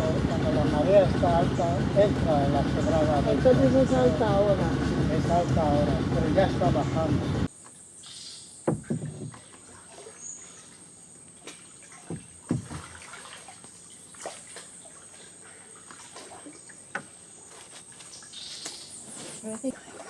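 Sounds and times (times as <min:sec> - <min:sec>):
soft knocks: 0:08.7 - 0:09.5, 0:12.1 - 0:12.9
water splashes: 0:08.7 - 0:18.8, 0:19.5 - 0:20.0
water lapping against boat hull: 0:08.7 - 0:20.0.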